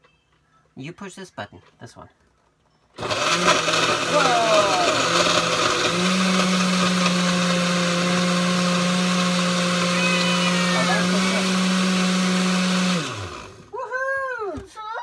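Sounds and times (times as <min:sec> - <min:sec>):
blender running: 0:03.0 - 0:13.7
child's high voice: 0:09.6 - 0:11.5, 0:14.6 - 0:15.0.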